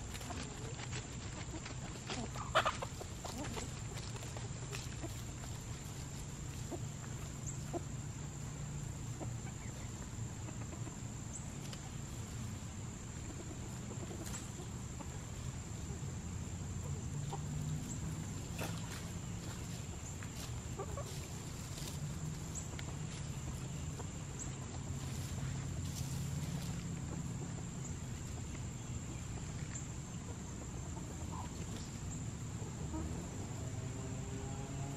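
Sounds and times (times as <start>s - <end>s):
scratches in dry leaves: 0.0s - 7.6s, 17.9s - 27.2s
chickens clucking: 0.0s - 34.3s.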